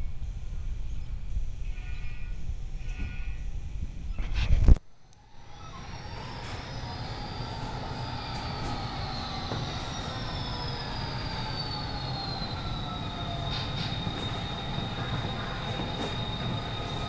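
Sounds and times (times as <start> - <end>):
high whines sliding down in pitch: 5.1 - 17.0
model train running on track: 5.2 - 17.0.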